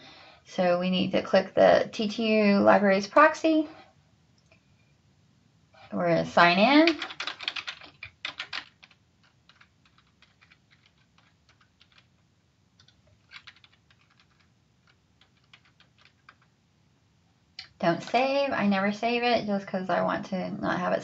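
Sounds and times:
keyboard typing: 6.8s - 12.2s, 12.8s - 16.6s.

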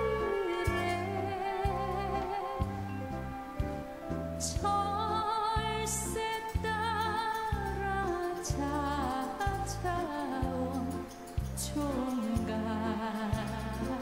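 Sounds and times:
vibrato lead melody: 0.0s - 6.2s
bass notes: 0.0s - 14.0s
faint cymbal hisses: 0.0s - 14.0s
slow song instrumental: 0.0s - 14.0s.

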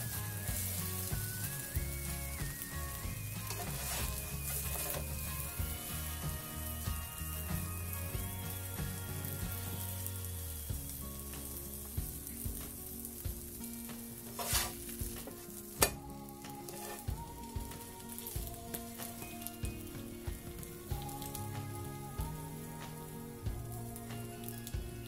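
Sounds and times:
toast sizzling in frying pan: 0.0s - 25.0s
spatula scraping pan: 0.1s - 7.0s, 14.1s - 16.0s, 16.6s - 17.2s.

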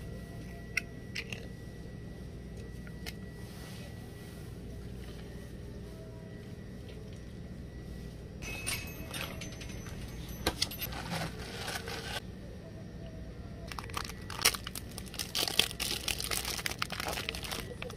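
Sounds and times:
ice cubes clinking in plastic cup: 13.7s - 17.9s
plastic package crinkling: 13.7s - 17.9s.

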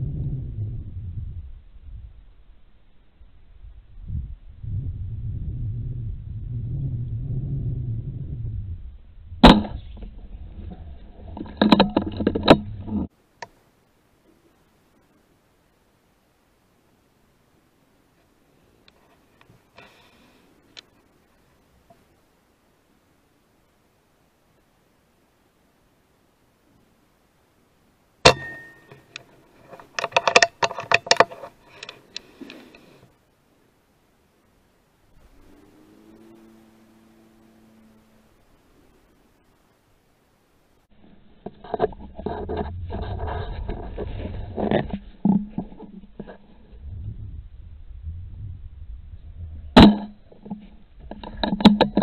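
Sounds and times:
clicks and knocks: 28.3s - 32.0s.

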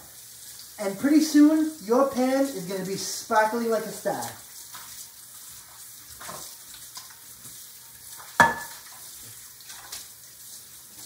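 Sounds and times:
faucet water running: 0.0s - 11.0s
pan clanking: 8.4s - 8.9s.

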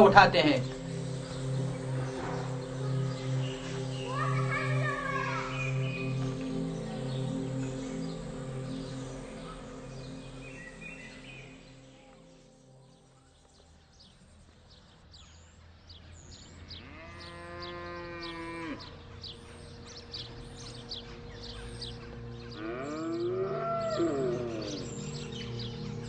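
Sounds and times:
birds chirping: 0.0s - 26.0s
cow mooing: 16.7s - 19.0s, 22.6s - 25.1s.

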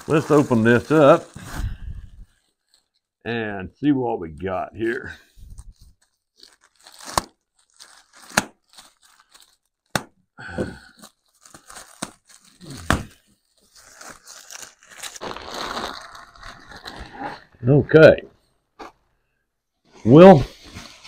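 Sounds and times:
plastic mailer tearing: 0.0s - 1.7s, 5.8s - 10.1s, 11.0s - 17.5s
plastic wrap crinkling: 0.0s - 3.2s, 4.3s - 10.2s, 10.8s - 17.6s, 20.5s - 21.0s.

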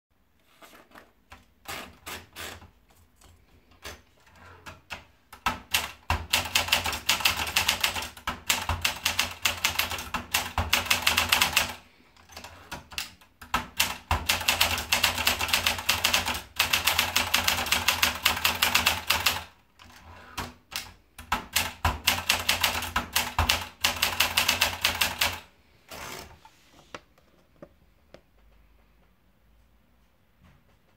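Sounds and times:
typewriter keystrokes: 4.7s - 25.4s.

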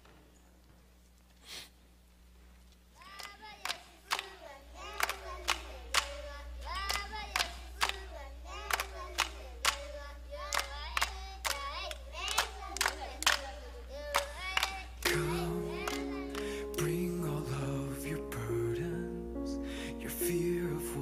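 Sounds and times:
voices singing: 3.0s - 21.0s
hand clapping: 3.1s - 16.8s.

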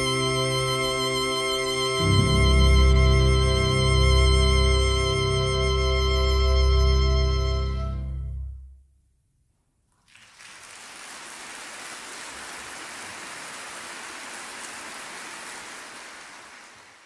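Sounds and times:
violin and orchestra chord: 0.0s - 8.6s
audience applause: 10.1s - 17.0s.

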